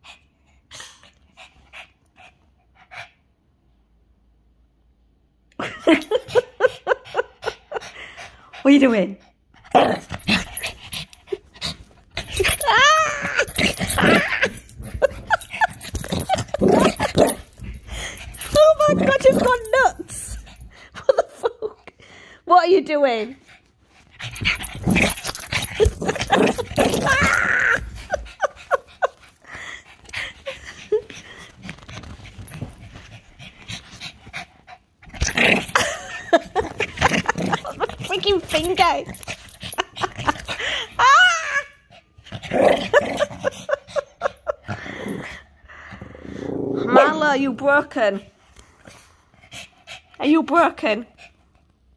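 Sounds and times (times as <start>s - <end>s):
dog whining and grumbling: 9.7s - 20.7s, 24.2s - 31.5s, 35.1s - 47.4s
dog whining: 12.2s - 19.9s, 24.8s - 28.8s
dog panting and snuffling: 27.8s - 35.1s, 48.0s - 51.9s.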